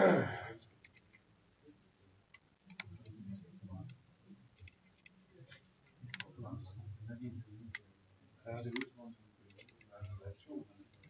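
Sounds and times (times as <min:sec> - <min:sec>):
computer mouse clicks: 0:00.8 - 0:01.3, 0:02.3 - 0:03.2, 0:03.8 - 0:06.3, 0:09.5 - 0:10.2.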